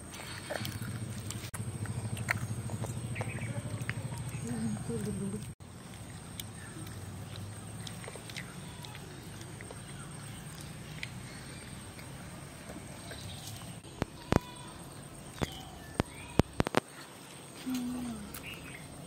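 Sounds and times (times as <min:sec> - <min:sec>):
faint bird chirps: 0:13.0 - 0:18.9.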